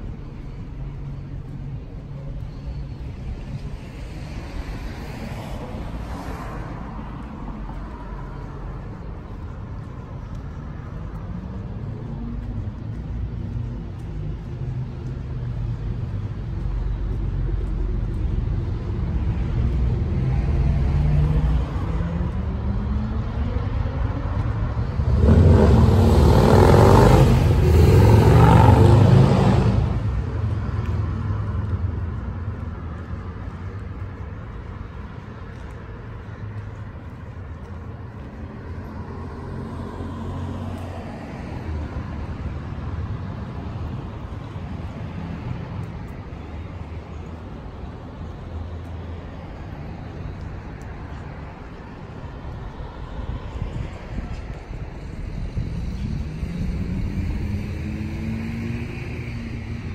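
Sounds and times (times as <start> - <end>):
vehicle engine accelerating: 11.3 - 32.7, 54.6 - 59.9
vehicle passing close by: 19.6 - 32.1, 53.3 - 59.9.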